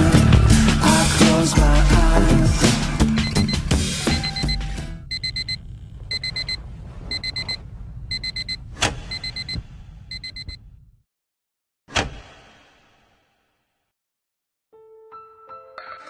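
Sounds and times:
alarm clock beeping: 3.2 - 10.6
low rumble: 5.2 - 8.8.

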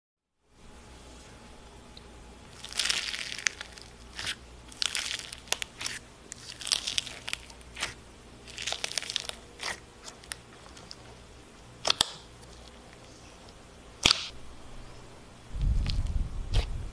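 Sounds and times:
crunchy slime crackling: 2.5 - 11.1.

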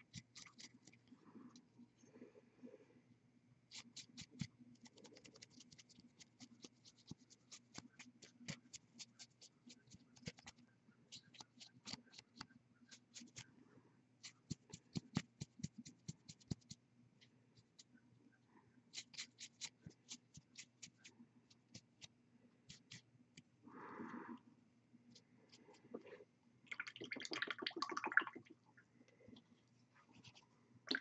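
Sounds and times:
paintbrush clicks and scratches: 0.0 - 1.6, 3.7 - 13.6, 14.2 - 18.0, 18.9 - 23.5, 30.0 - 31.0
low steady hum: 0.0 - 31.0.

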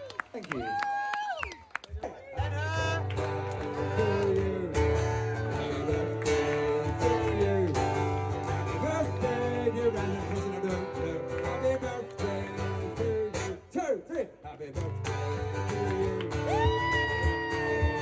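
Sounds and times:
strummed acoustic guitar: 2.4 - 13.6, 14.7 - 18.0
person singing: 2.5 - 13.6, 14.8 - 18.0.

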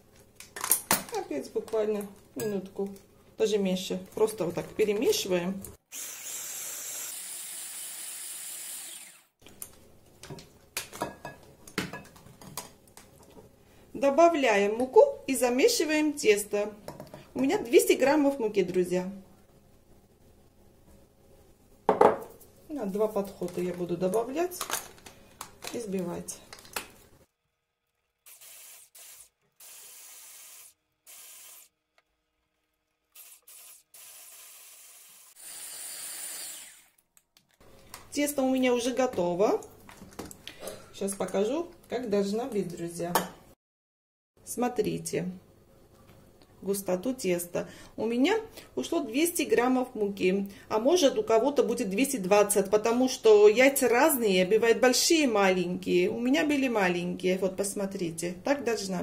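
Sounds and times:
electric hand blender running: 5.9 - 9.3, 33.5 - 37.0.

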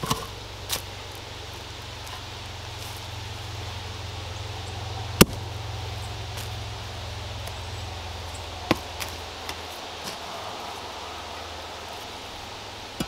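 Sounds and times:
steady low rumble: 0.0 - 13.0.

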